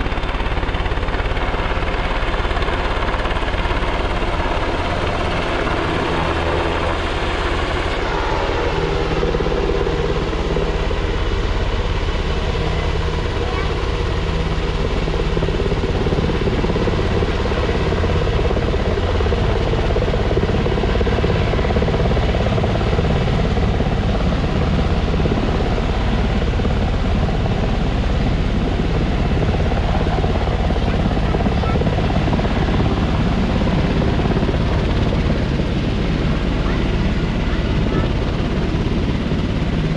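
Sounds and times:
helicopter rotor and engine: 0.0s - 39.9s.

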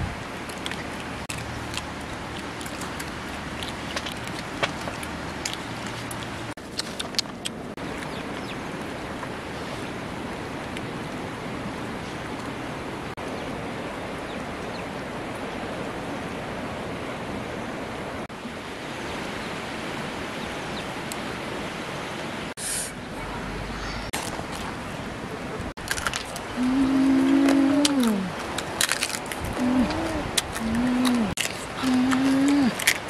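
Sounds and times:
short sharp high hiss: 22.6s - 23.0s.

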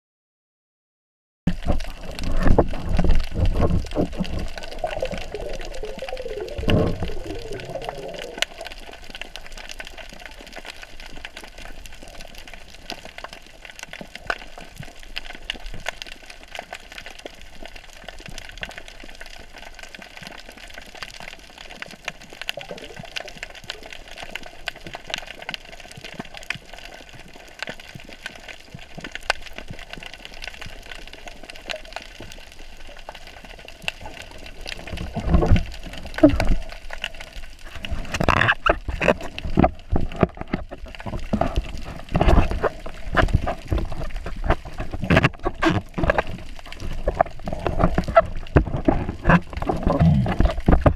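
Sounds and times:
rush of water: 1.5s - 16.9s, 17.5s - 50.9s
faint underwater clicks: 1.5s - 50.9s
underwater hiss: 4.4s - 8.9s.

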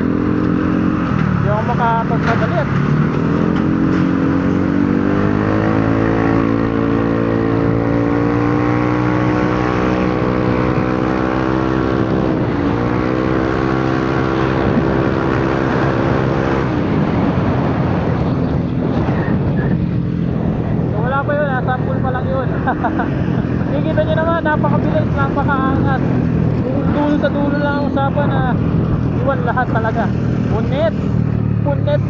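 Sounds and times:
scooter engine accelerating: 0.0s - 20.3s
wind and road noise: 0.0s - 32.0s.

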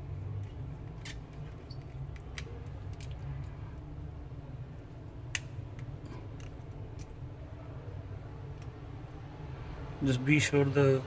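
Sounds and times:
clicks of small phone parts: 0.4s - 3.6s, 5.2s - 7.2s.

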